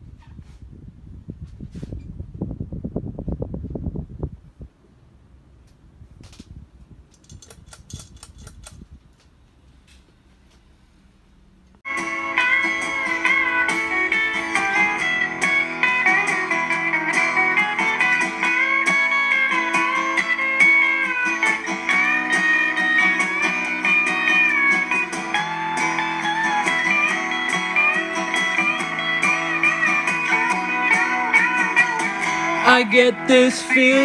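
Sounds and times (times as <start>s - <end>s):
guitar instrumental music: 11.8s - 34.0s.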